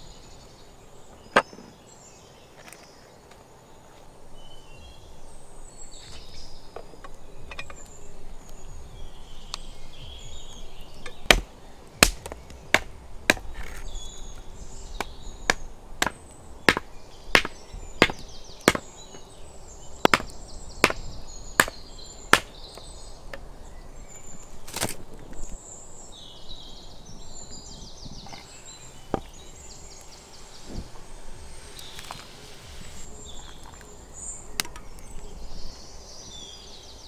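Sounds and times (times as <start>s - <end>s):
hatchet chopping wood: 11.1s - 13.8s, 15.0s - 19.2s, 20.0s - 22.6s
faint high chirping: 25.4s - 37.0s.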